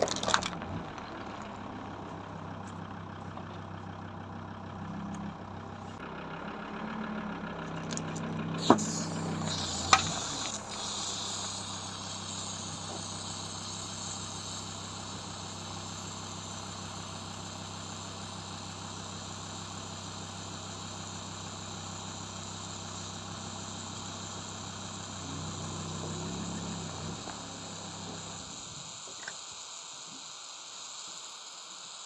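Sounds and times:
truck engine idling: 0:00.0 - 0:29.6
aerosol can hissing: 0:08.6 - 0:32.0.

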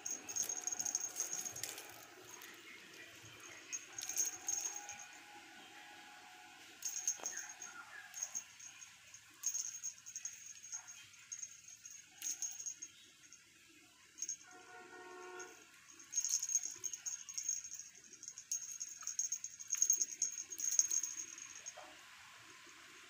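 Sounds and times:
cat toy jingling and rattling: 0:00.0 - 0:05.3, 0:06.8 - 0:13.5, 0:14.1 - 0:14.6, 0:15.2 - 0:21.8.

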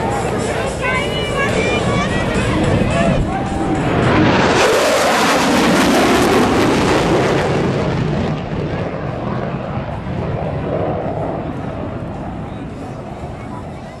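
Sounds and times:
fighter jet passing overhead: 0:00.0 - 0:14.0.

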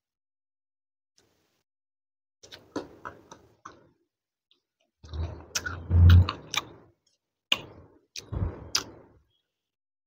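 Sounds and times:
wet mouth clicks and chewing: 0:04.5 - 0:09.1.

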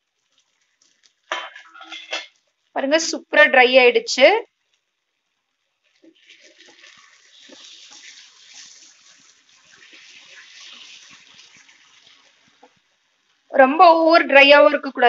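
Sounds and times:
food sizzling in a pan: 0:00.0 - 0:15.0
spatula scraping and clicking on pan: 0:00.8 - 0:02.5.

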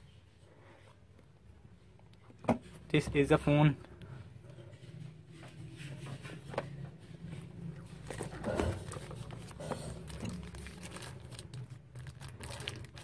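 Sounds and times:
plastic wrap rustling: 0:07.7 - 0:13.0.

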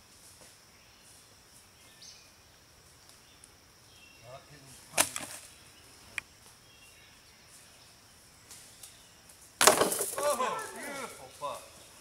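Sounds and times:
disc hitting basket chains: 0:09.6 - 0:10.9.

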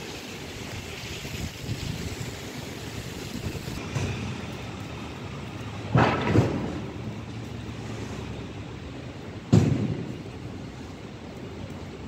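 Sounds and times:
outdoor hiss: 0:00.0 - 0:12.0
faint traffic: 0:02.6 - 0:12.0.

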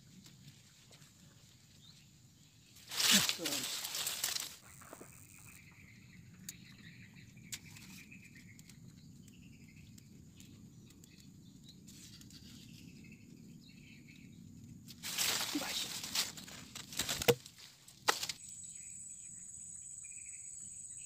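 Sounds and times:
loud rustling: 0:15.0 - 0:17.4.

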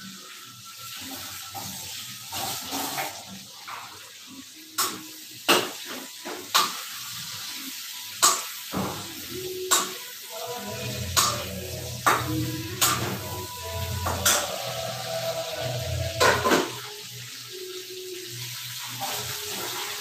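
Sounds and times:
water splashing and running: 0:00.0 - 0:20.0
steel dishes clanking: 0:16.0 - 0:16.8.

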